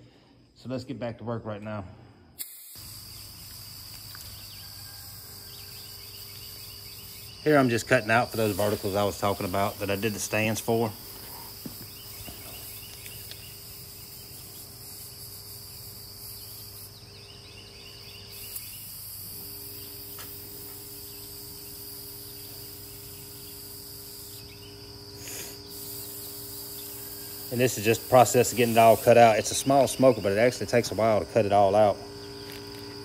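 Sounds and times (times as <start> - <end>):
plasma cutter hissing and whining: 2.4 - 3.1, 25.2 - 30.0.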